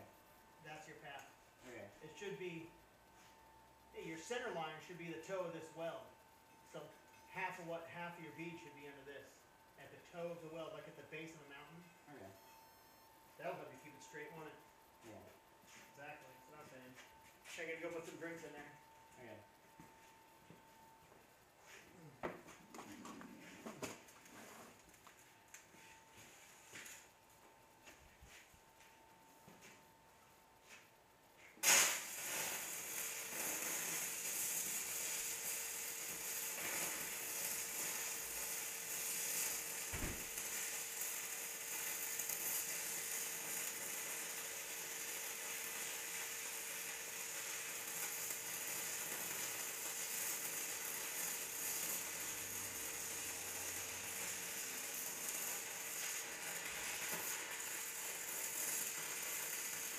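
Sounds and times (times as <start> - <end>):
welding arc crackling sizzle: 0.0 - 12.6, 13.3 - 59.9
faint steady tone: 0.0 - 22.3
arc striking crack: 31.6 - 32.2.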